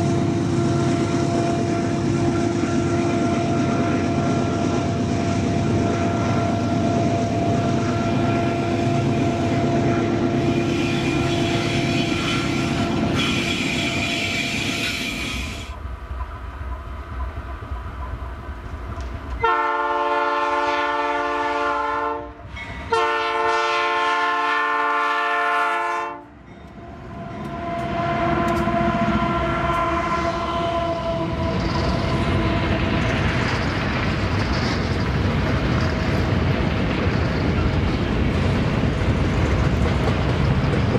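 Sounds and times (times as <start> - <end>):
train wheels rumbling on rail: 0.0 - 40.9
locomotive air horn: 7.8 - 15.7, 19.4 - 26.3, 27.4 - 32.7.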